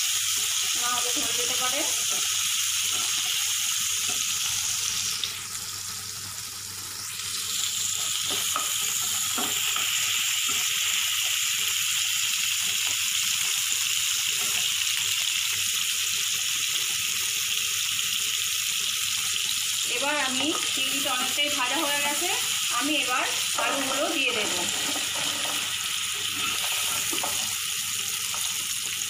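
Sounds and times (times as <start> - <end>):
prawns sizzling in a frying pan: 0.0 - 29.0
spatula stirring in a pan: 0.3 - 4.6, 7.9 - 11.4, 22.9 - 29.0.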